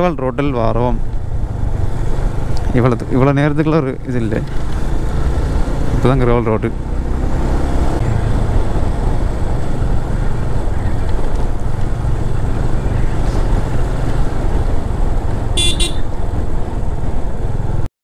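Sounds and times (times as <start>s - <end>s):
motorcycle engine rumble: 0.0s - 17.8s
wind rumble: 0.0s - 17.9s
motorcycle horn toots: 15.6s - 16.1s.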